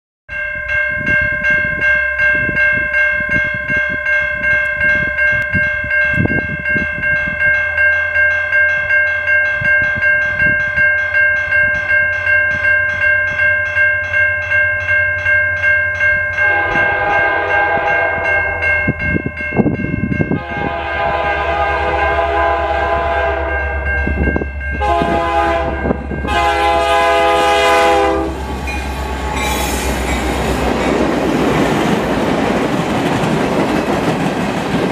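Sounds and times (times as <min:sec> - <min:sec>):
low rumble of train: 0:00.3 - 0:34.9
railroad crossing bell ringing: 0:00.3 - 0:34.9
locomotive horn blasts: 0:16.4 - 0:18.7, 0:20.3 - 0:23.9, 0:24.7 - 0:28.6.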